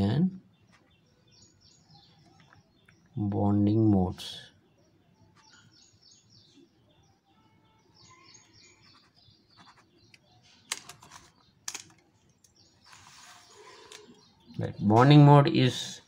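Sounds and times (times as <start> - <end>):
faint bird chirps: 0.0 - 16.0
ballpoint pen scratching on paper: 8.6 - 10.1.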